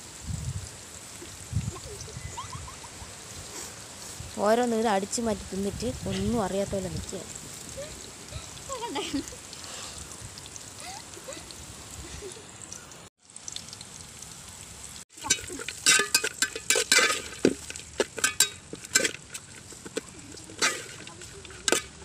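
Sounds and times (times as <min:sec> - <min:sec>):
spoon scraping metal pan: 0:15.2 - 0:22.0.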